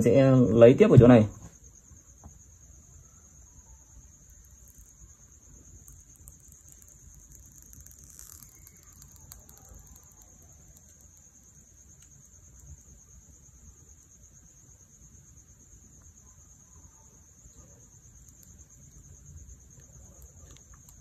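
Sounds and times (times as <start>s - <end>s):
faint high-pitched whine: 0.0s - 21.0s
fingers ticking and scraping on glass: 5.8s - 11.2s.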